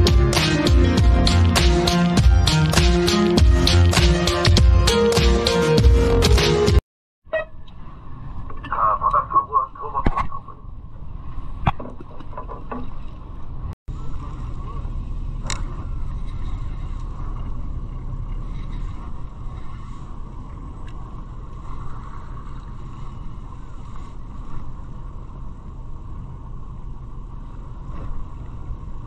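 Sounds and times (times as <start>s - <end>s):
boat engine rumble: 0.0s - 29.0s
wind: 0.0s - 29.0s
constant mid hum: 7.3s - 29.0s.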